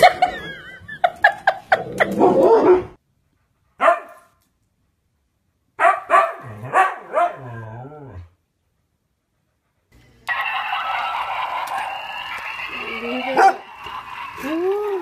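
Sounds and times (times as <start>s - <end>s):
dog barking: 3.8s - 4.3s, 5.8s - 7.5s, 13.4s - 13.6s.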